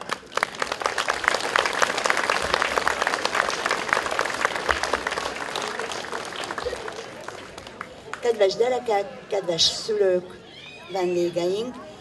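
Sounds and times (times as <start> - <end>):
audience applauding: 0.0 - 8.3.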